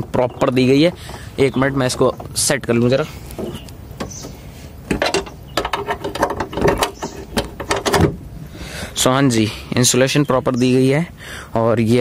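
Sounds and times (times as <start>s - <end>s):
mechanical clicks and knocks: 3.3s - 8.2s.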